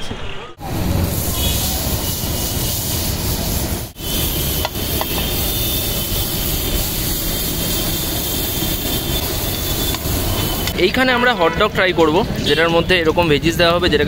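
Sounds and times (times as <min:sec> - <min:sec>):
vegetables sizzling on a griddle: 0:00.7 - 0:10.7.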